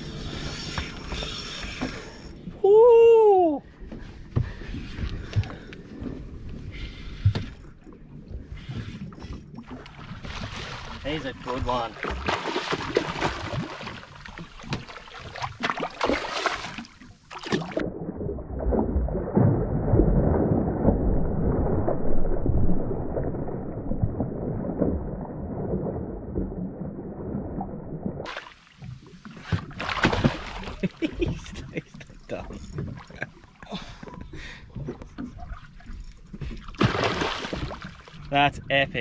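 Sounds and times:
water around a boat: 0.0 - 39.0
low rumbling noise: 17.7 - 28.3.

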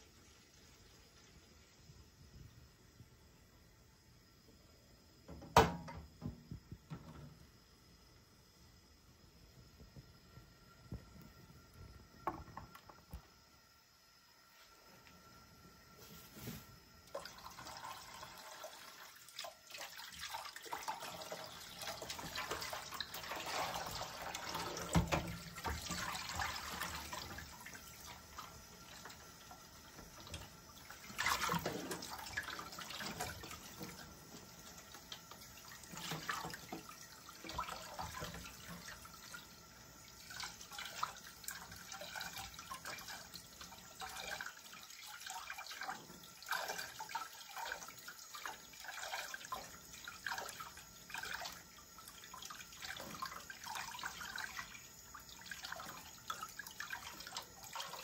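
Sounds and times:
tap water running into sink: 5.2 - 7.6, 10.9 - 13.4, 17.0 - 58.0.

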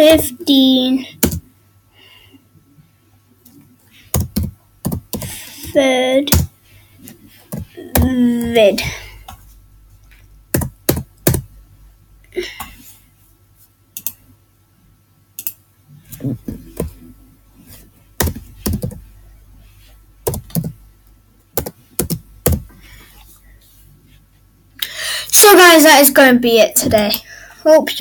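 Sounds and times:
keyboard typing: 1.2 - 1.4, 3.4 - 6.5, 7.4 - 9.4, 10.5 - 11.5, 14.0 - 14.2, 15.4 - 17.1, 18.2 - 19.1, 20.2 - 20.8, 21.6 - 22.7.

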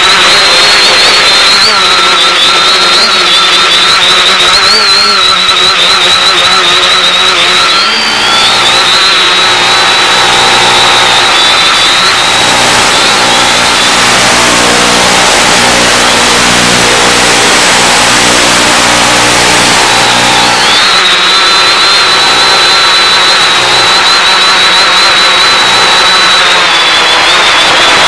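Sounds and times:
wavering high whine: 7.1 - 28.0
radio static hiss and buzz: 12.2 - 20.7.

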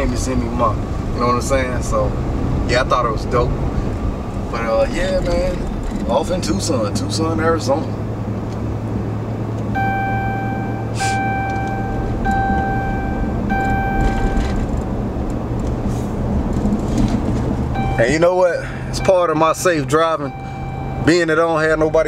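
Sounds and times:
engine and road drone: 0.0 - 22.0
beeping tone: 9.7 - 14.7, 17.7 - 22.0.

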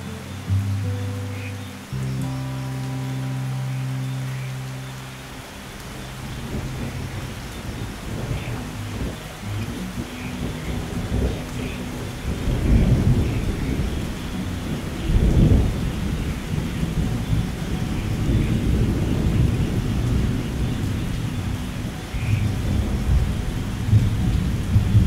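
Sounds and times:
steady rain: 0.0 - 25.0
low rolling thunder: 5.6 - 25.0.

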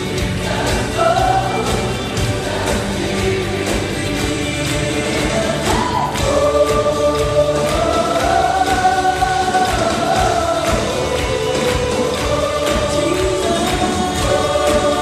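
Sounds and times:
gospel choir singing: 0.0 - 15.0
steady beat: 0.0 - 15.0.

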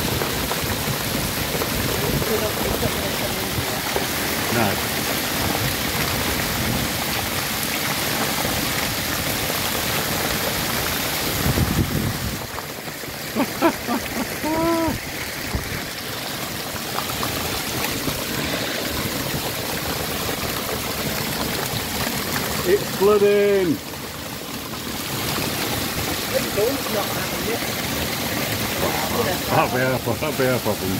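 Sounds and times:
hail and rain falling hard: 0.0 - 30.9.

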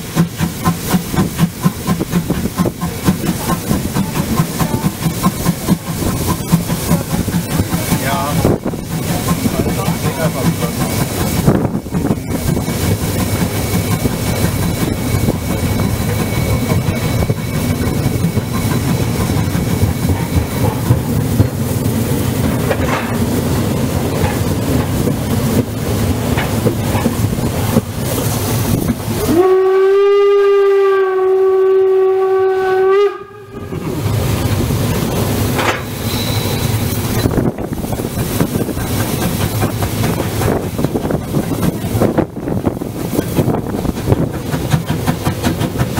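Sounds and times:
steam locomotive rumbling: 0.0 - 45.9
steam whistle: 29.2 - 33.8.

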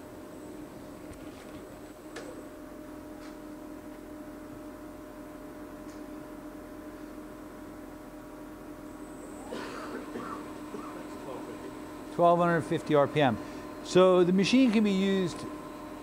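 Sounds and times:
lathe spindle humming: 0.0 - 16.0.

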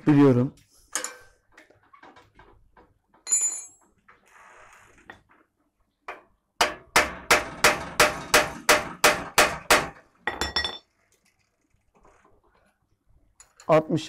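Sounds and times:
hammer striking metal: 6.6 - 10.8.

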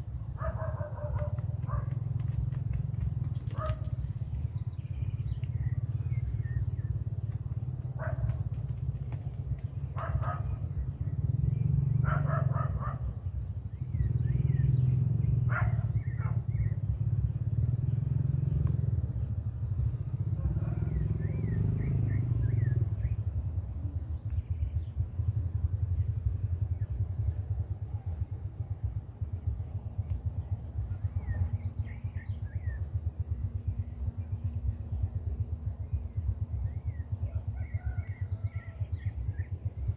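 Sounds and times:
high insect drone: 0.0 - 39.9
low rumble: 13.2 - 39.9.

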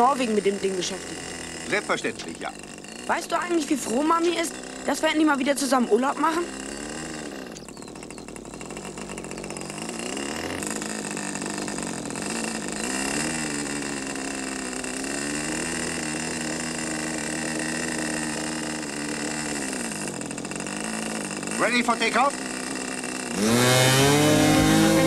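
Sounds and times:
model airplane engine running: 0.0 - 25.0.

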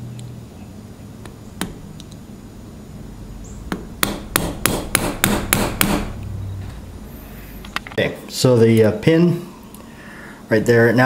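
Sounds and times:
mallet tapping metal punch: 3.7 - 6.2.

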